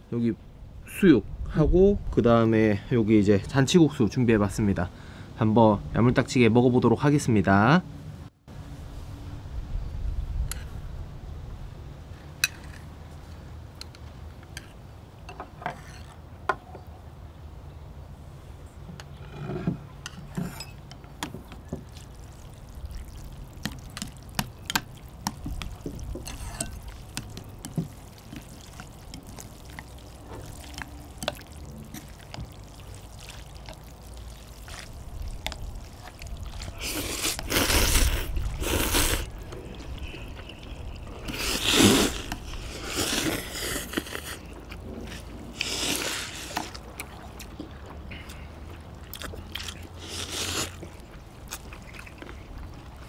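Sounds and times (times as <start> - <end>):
slurping noodles: 28.1 - 47.2, 49.1 - 52.4.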